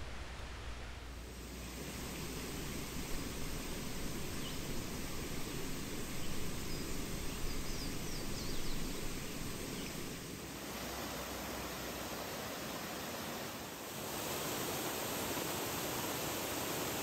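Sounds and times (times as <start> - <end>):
mountain stream rushing: 0.0 - 17.0
faint bird chirps: 2.1 - 5.2, 6.0 - 10.1.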